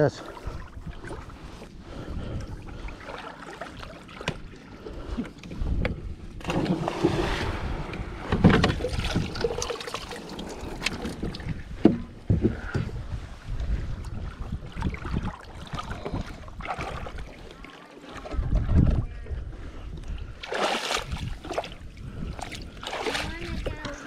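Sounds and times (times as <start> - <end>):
water: 0.0 - 24.0
wind: 0.0 - 24.0
clunks and knocks on plastic hull: 8.2 - 9.2, 11.1 - 13.0.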